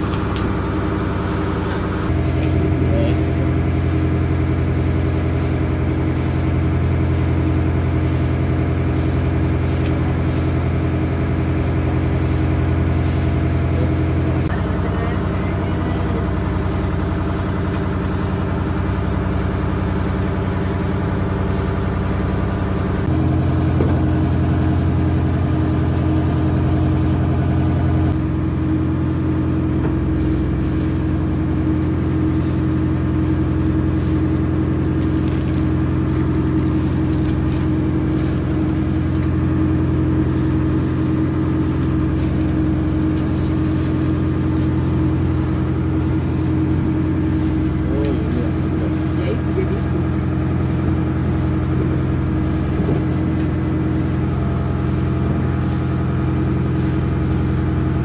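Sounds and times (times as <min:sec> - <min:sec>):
engine humming: 0:00.0 - 0:58.0.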